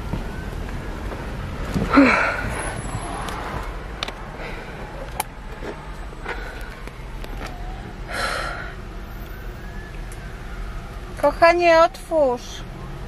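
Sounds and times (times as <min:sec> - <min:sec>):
car low rumble: 0:00.0 - 0:13.0.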